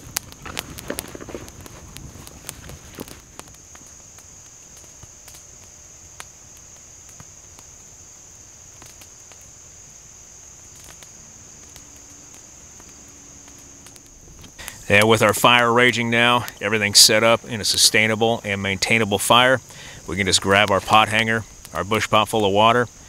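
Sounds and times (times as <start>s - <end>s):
insects droning: 0.0s - 23.0s
sharp clicks and snaps: 10.7s - 15.1s.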